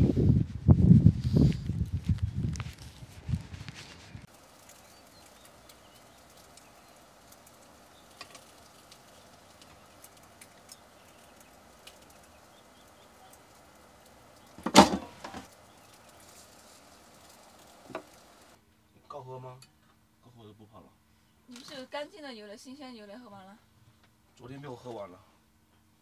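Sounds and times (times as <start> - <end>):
pancakes sizzling in pan: 4.2 - 18.6.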